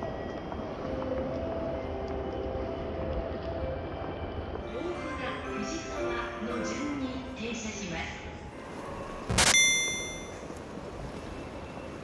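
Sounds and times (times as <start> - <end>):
railway station background rumble: 0.0 - 12.0
chime ringing: 9.5 - 10.4.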